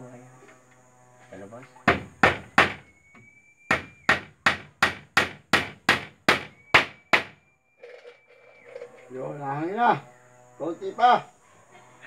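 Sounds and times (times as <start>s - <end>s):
hammer blows on bamboo: 1.7s - 7.4s.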